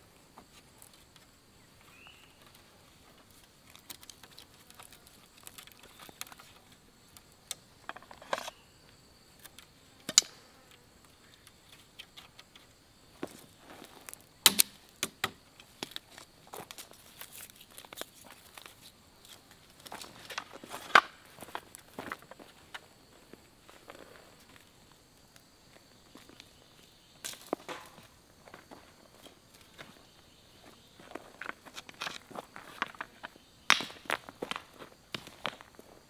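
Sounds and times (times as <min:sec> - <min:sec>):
faint high insect drone: 0:00.0 - 0:36.0
bamboo strips clicking and rustling: 0:03.2 - 0:08.6, 0:11.3 - 0:12.7, 0:14.0 - 0:22.8, 0:31.4 - 0:35.6
sharp bamboo cracks: 0:03.4 - 0:08.6, 0:14.1 - 0:21.2, 0:27.2 - 0:28.1, 0:31.8 - 0:35.6.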